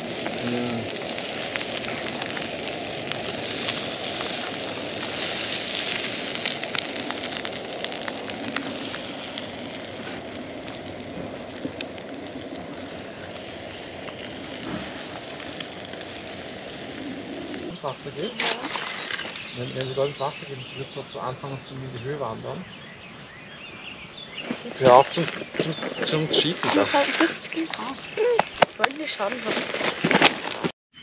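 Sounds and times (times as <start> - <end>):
eggs sizzling in frying pan: 0.0 - 20.1.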